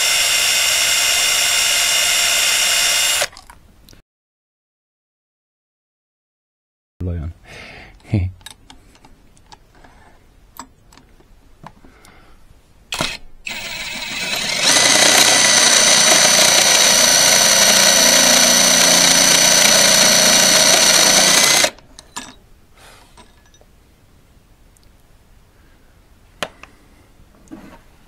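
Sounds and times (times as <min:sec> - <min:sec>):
electric motor whine: 0:00.0 - 0:03.3, 0:13.0 - 0:21.8.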